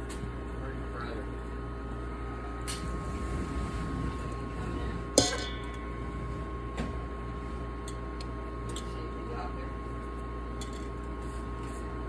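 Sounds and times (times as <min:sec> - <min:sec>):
metal utensil clinking on steel bowl: 0:05.2 - 0:05.8.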